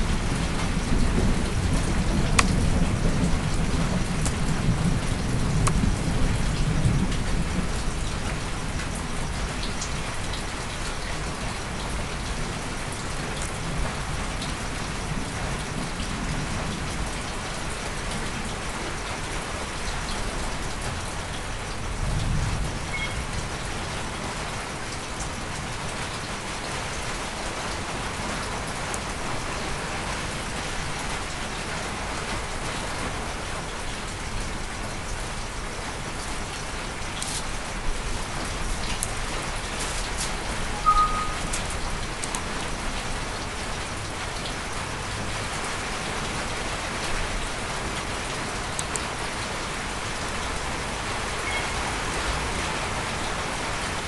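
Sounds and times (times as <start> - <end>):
steady hiss with fine patter: 25.8 - 40.8.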